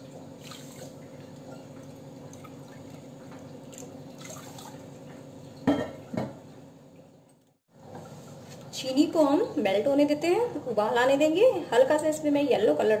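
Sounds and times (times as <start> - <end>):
water splashing and dripping: 0.4 - 5.0.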